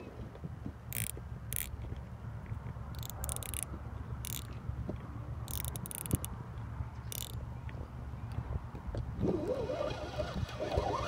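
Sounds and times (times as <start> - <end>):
wind rumble on microphone: 0.0 - 2.9, 6.0 - 11.0
fishing reel drag ratcheting: 0.9 - 1.8, 2.9 - 4.6, 5.5 - 6.3, 7.1 - 7.4.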